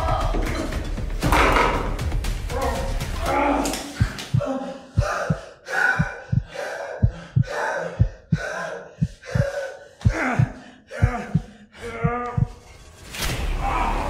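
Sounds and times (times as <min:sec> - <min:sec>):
person gasping and panting: 0:03.7 - 0:12.6.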